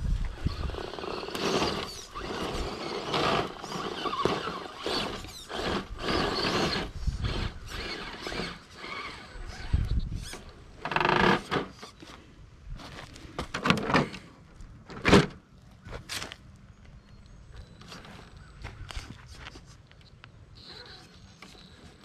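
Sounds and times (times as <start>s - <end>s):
electric motor and gears whining: 0.1s - 12.0s
tires scrabbling over dirt: 0.2s - 11.8s.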